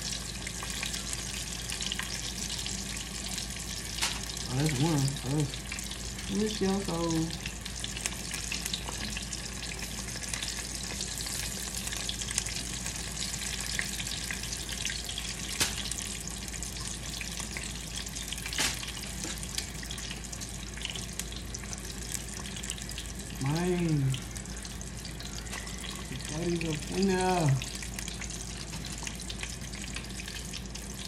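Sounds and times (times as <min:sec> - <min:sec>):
food sizzling in hot oil: 0:00.0 - 0:31.0
sharp oil pops: 0:15.6 - 0:15.9.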